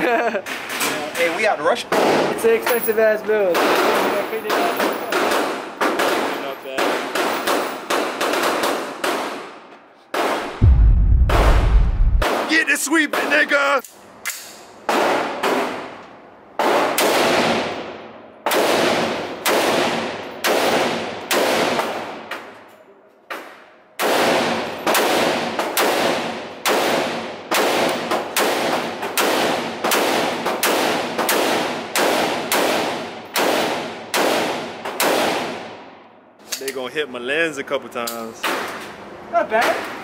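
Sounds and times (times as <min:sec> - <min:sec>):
rifle shots echoing indoors: 0:03.6 - 0:12.4, 0:16.6 - 0:22.5, 0:24.0 - 0:36.0.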